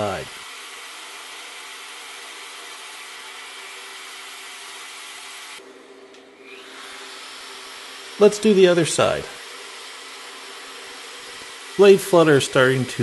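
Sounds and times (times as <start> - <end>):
die grinder hissing on blade: 0.0 - 5.6, 6.4 - 13.0
bandsaw humming: 0.0 - 5.7, 6.4 - 13.0.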